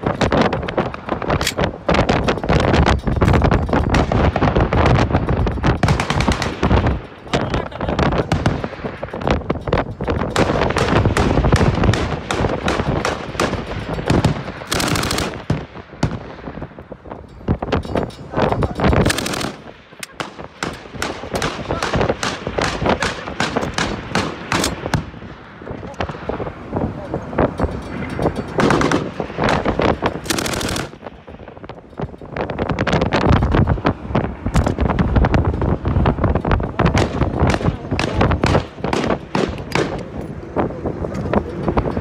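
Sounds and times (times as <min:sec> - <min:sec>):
machine-gun fire: 0:03.9 - 0:07.0, 0:10.3 - 0:16.4, 0:18.9 - 0:25.2, 0:28.6 - 0:31.0, 0:36.8 - 0:40.0.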